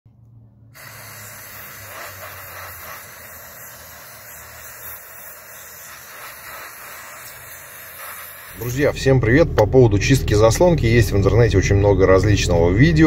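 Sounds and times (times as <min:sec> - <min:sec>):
aerosol spray hissing: 0:00.7 - 0:08.8.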